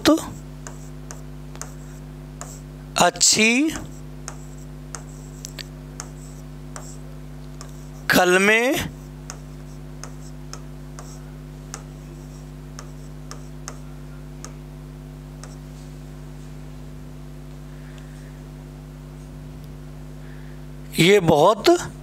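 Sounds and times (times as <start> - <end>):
electrical mains hum: 0.0 - 22.0
pen tapping while writing: 0.6 - 2.6, 3.8 - 7.0, 7.6 - 7.9, 9.2 - 14.6, 15.4 - 15.6.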